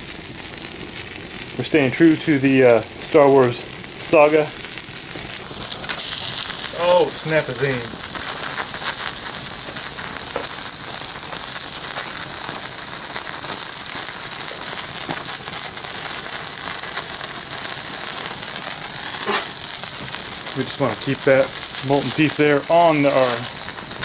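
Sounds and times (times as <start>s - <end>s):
plastic burning in flames: 0.0s - 24.0s
small pops of melting plastic: 8.1s - 20.6s.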